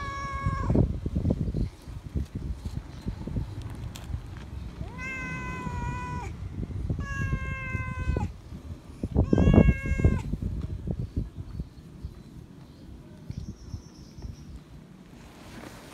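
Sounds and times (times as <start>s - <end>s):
cat meowing loudly: 0.0s - 0.8s, 4.8s - 6.4s, 7.0s - 8.3s, 9.2s - 10.3s.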